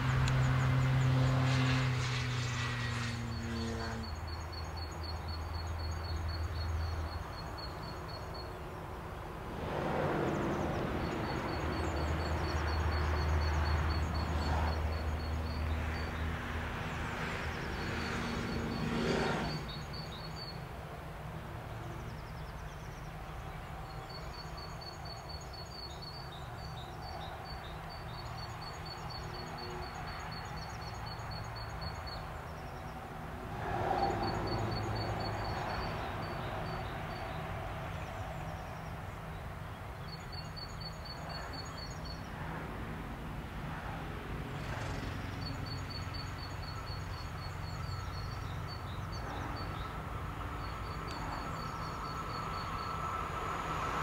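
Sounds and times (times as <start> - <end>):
distant traffic rumble: 0.0 - 54.0.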